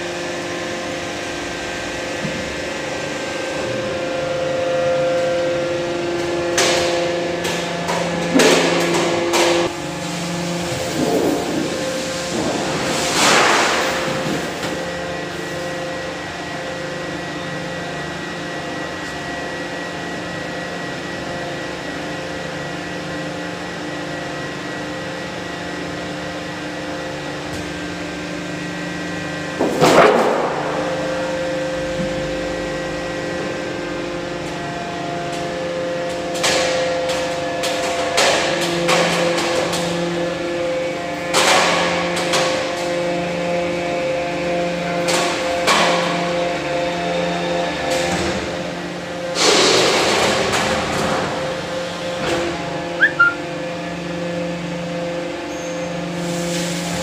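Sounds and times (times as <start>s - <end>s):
hydraulic power unit hum: 0.0s - 57.0s.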